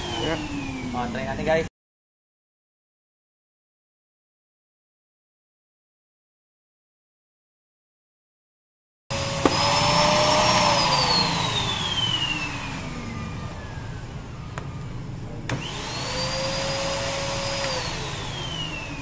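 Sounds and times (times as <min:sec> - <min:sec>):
vacuum cleaner motor whining: 0:00.0 - 0:01.6, 0:09.1 - 0:14.8, 0:15.4 - 0:19.0
vacuum cleaner switch click: 0:15.5 - 0:15.8, 0:17.6 - 0:17.9.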